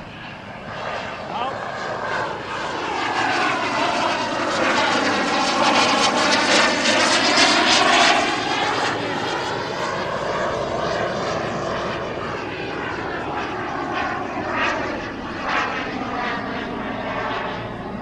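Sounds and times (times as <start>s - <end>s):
model jet turbine passing over: 0.0s - 18.0s.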